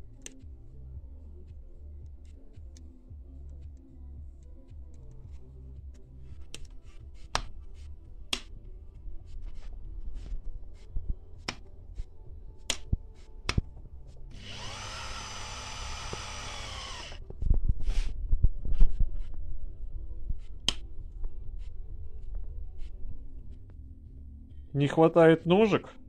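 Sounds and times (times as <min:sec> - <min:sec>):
small electric motor running: 0:14.3 - 0:17.2.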